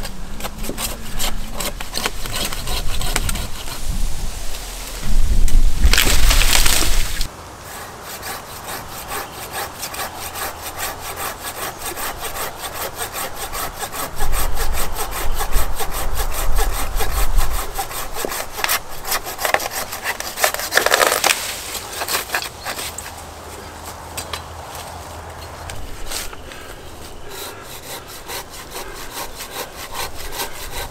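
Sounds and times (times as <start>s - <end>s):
hand saw cutting branch: 0.0s - 4.0s, 5.9s - 23.2s, 25.8s - 30.9s.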